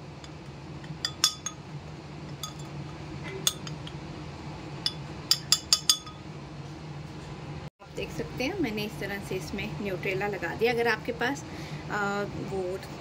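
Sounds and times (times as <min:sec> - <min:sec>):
spoon clinking against glass: 0:00.2 - 0:01.6, 0:02.4 - 0:02.8, 0:03.4 - 0:03.9, 0:04.8 - 0:06.2.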